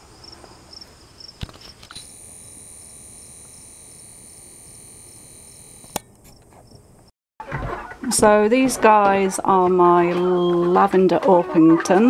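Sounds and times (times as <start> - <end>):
insects trilling: 0.0 - 6.8
soft insect chirps: 0.2 - 6.8
sharp click: 5.4 - 6.5.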